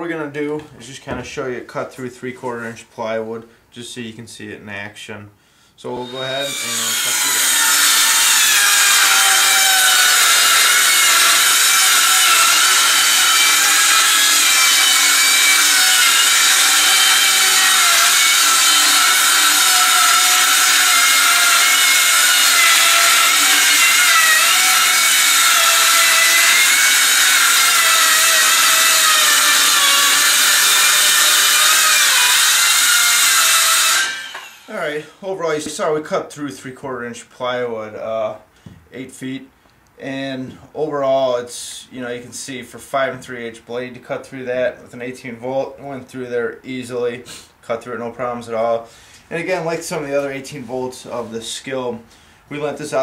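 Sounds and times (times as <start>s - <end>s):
circular saw cutting wood: 5.9s - 35.1s.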